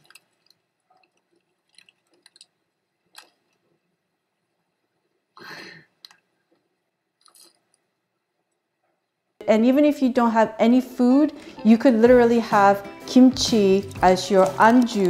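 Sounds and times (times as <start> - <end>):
foil packet crinkling: 14.1 - 15.0.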